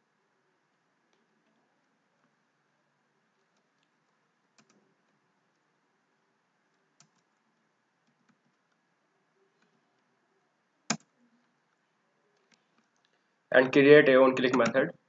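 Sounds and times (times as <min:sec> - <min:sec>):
faint keyboard keystrokes: 0:14.4 - 0:14.8.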